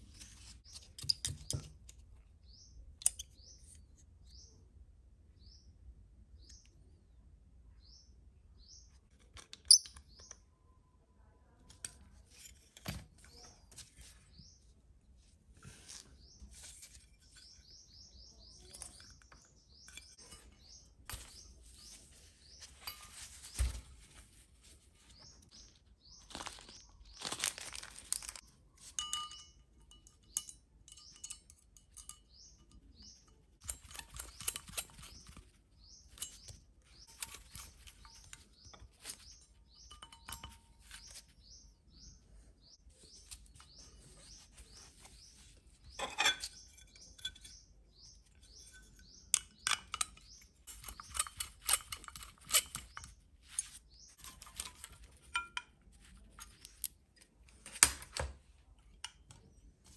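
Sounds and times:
bird chirping: 0.0 - 12.6, 13.2 - 57.4
small parts clicking and tapping: 0.6 - 2.2, 2.8 - 4.1, 8.9 - 10.5, 16.8 - 22.0, 25.4 - 41.4, 45.9 - 59.9.

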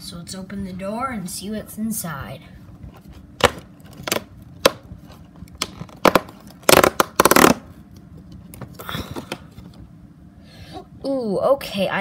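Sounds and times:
cardboard tearing: 3.4 - 7.7.

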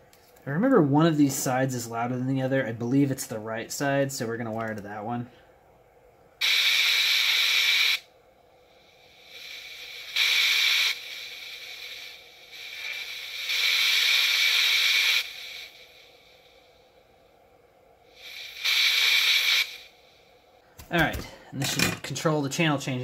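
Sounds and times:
radio static hissing: 6.4 - 8.1, 9.1 - 16.7, 18.1 - 20.1.

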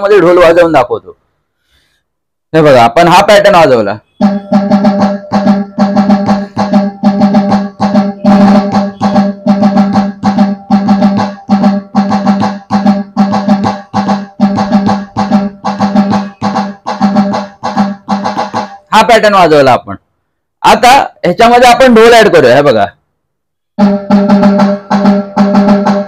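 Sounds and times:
electronic drum pad rhythm: 4.2 - 19.4, 23.8 - 26.0.

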